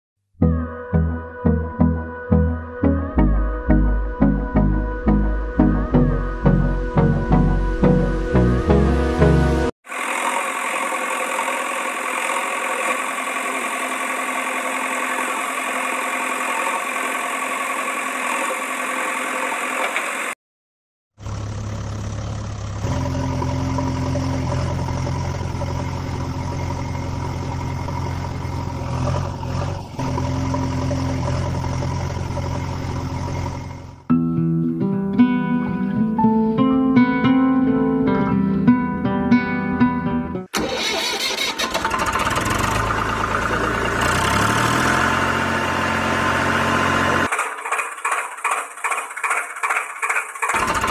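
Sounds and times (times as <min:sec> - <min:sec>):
deep engine drone: 0:01.0 - 0:19.6, 0:21.2 - 0:34.1, 0:41.7 - 0:47.3
buzzy machine drone: 0:22.8 - 0:34.0.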